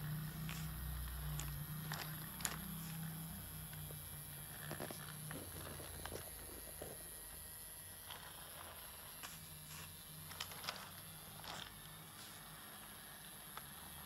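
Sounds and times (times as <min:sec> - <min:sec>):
toy train motor humming: 0:00.0 - 0:14.0.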